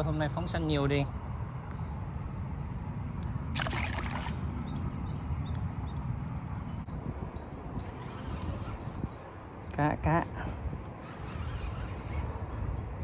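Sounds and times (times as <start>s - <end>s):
fish splashing in water: 3.6s - 4.5s.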